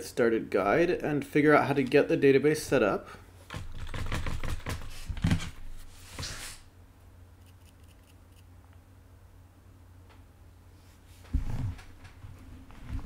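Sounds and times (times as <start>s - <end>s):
rapid clicking and tapping: 3.5s - 4.9s.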